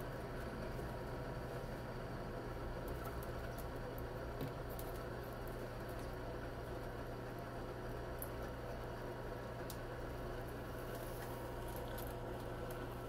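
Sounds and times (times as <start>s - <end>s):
steady low hum: 0.0s - 13.0s.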